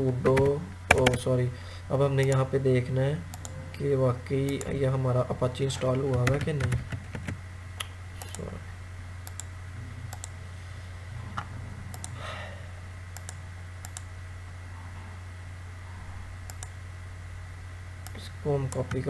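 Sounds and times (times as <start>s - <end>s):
low electrical hum: 0.0s - 19.0s
computer mouse clicks: 3.3s - 3.5s, 9.2s - 9.5s, 10.1s - 10.4s, 11.4s - 12.2s, 13.2s - 14.1s, 16.5s - 16.8s.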